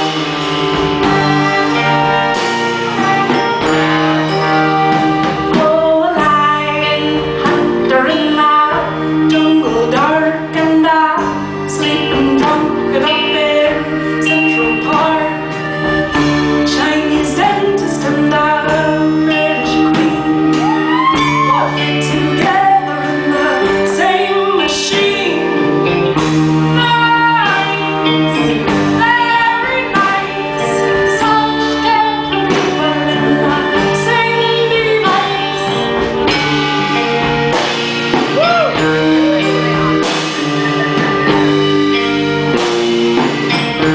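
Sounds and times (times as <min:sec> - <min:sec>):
live band music: 0:00.0 - 0:43.9
woman singing into microphone: 0:05.4 - 0:26.0, 0:26.8 - 0:37.0.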